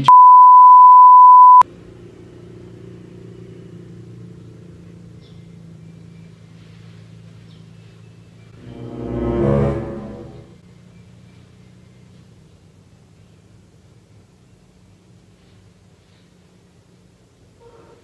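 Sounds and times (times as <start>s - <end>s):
steady test tone beep: 0.0s - 1.6s.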